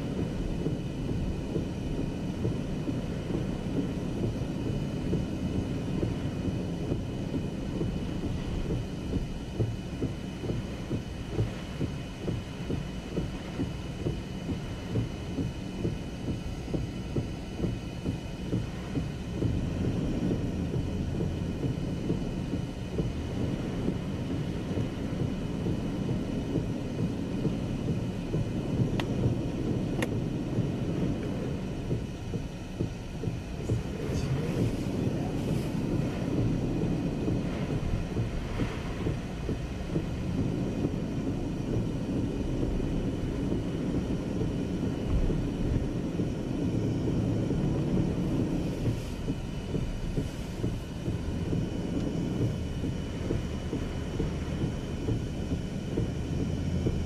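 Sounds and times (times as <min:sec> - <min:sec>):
heavy rain: 0:17.6 - 0:57.0.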